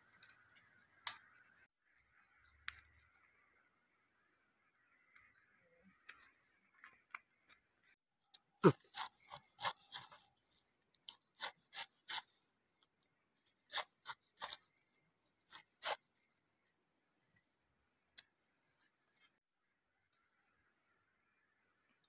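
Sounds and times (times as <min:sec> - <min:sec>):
knife slicing pineapple: 0:08.6 - 0:10.3, 0:11.1 - 0:12.4, 0:13.6 - 0:14.8, 0:15.5 - 0:16.0.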